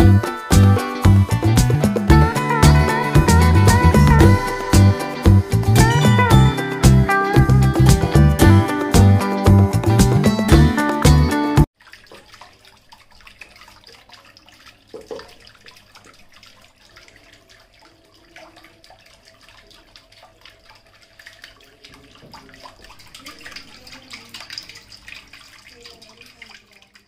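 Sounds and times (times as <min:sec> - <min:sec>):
fountain water splashing and trickling: 0:11.7 - 0:27.0.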